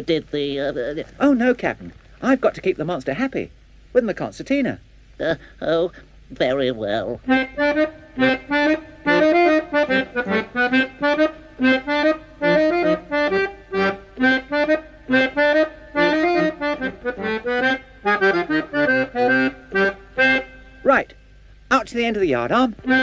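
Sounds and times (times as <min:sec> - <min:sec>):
concertina playing chords: 0:07.0 - 0:21.4, 0:22.4 - 0:23.0.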